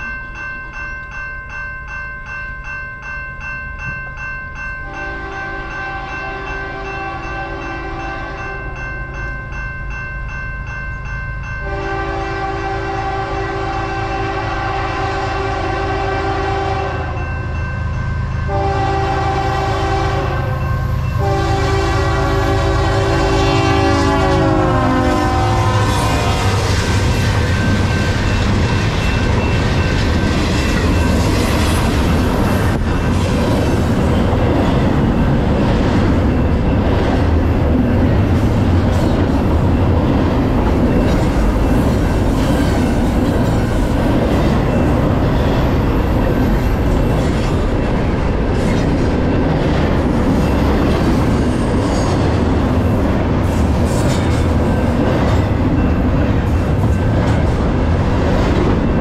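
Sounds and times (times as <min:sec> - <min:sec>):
freight train wheels rumbling: 0:03.8 - 0:59.0.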